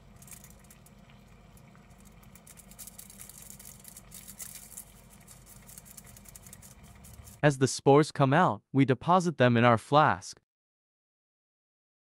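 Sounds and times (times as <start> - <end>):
low steady hum: 0.0 - 7.4
foil crinkling and scratching: 1.9 - 7.4.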